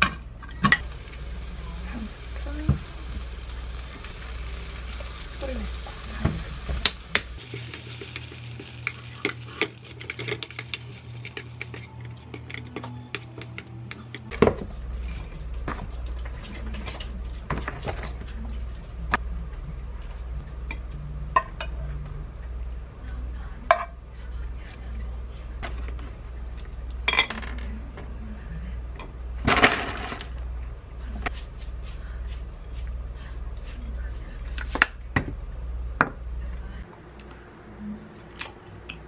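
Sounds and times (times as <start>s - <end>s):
chicken sizzling in a frying pan: 0.8s - 12.5s.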